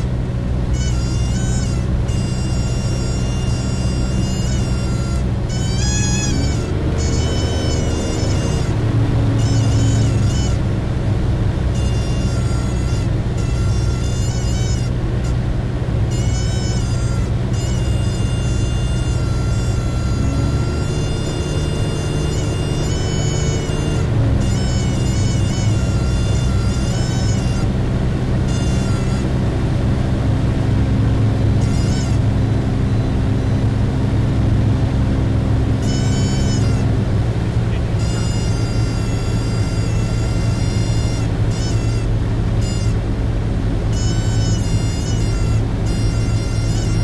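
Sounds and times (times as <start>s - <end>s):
aircraft engine and propeller drone: 0.0s - 47.0s.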